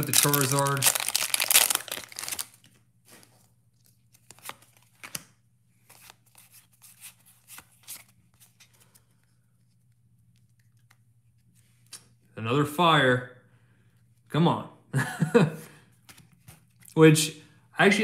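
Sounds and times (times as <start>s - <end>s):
foil wrapper crinkling: 0.0s - 2.8s
cards sliding and rustling: 2.2s - 10.0s.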